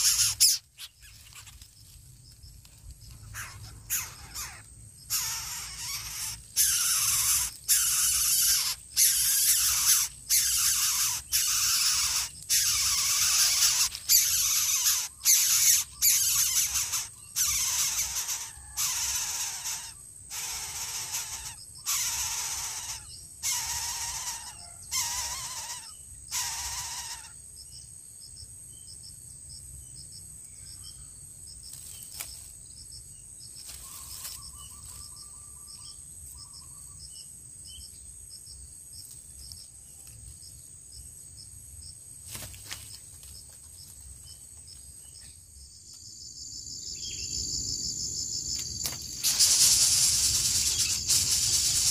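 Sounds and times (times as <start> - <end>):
bird chicks hissing: 0.0 - 0.6, 3.4 - 27.3, 48.7 - 51.9
crickets chirping: 0.0 - 51.9
thin insect whine: 0.0 - 51.9.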